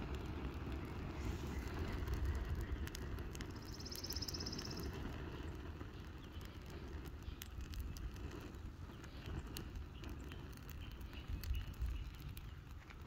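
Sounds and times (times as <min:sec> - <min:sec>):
fire crackling and popping: 0:00.0 - 0:13.0
low fire rumble: 0:00.0 - 0:13.0.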